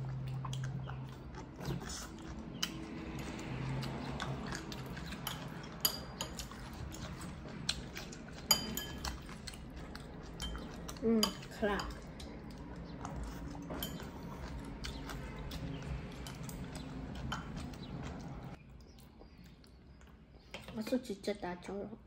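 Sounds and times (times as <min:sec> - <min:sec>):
chopsticks clinking on ceramic bowl: 0:05.0 - 0:07.0, 0:08.4 - 0:09.5, 0:10.3 - 0:12.3, 0:13.1 - 0:14.5.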